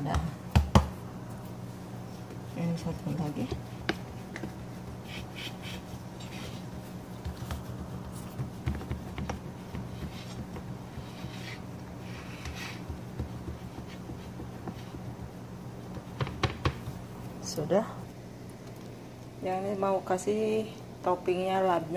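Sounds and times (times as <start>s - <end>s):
hands patting dough: 0.0s - 17.4s.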